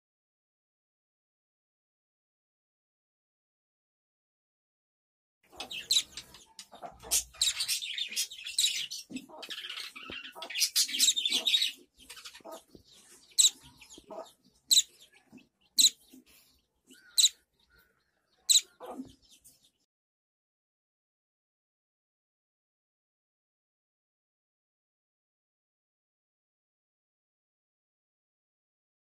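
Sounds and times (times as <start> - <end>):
fledgling bird chirping: 5.5 - 19.9.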